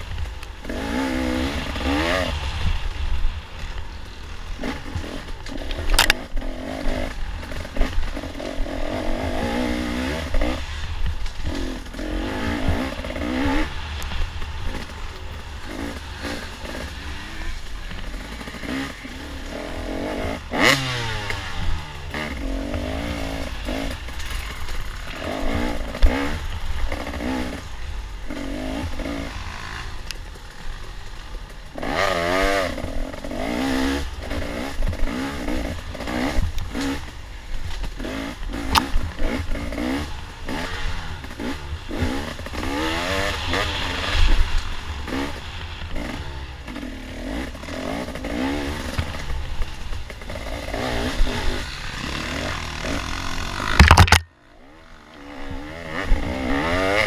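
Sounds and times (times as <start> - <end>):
bike rattling on rough ground: 0.0 - 57.0
dirt bike engine revving: 0.0 - 57.0
sharp knocks: 53.8 - 54.3.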